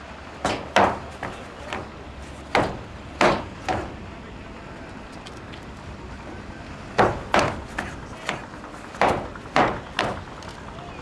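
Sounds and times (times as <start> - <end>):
foot stamps on wooden boards: 0.4 - 4.0, 7.0 - 10.5.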